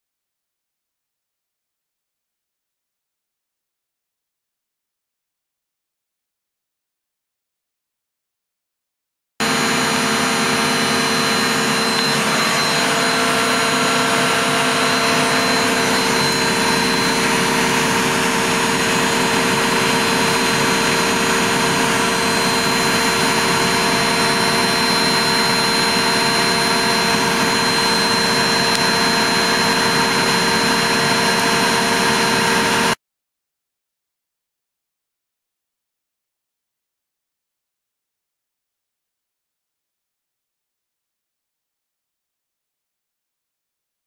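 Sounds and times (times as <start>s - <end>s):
washing machine spinning: 9.4s - 33.0s.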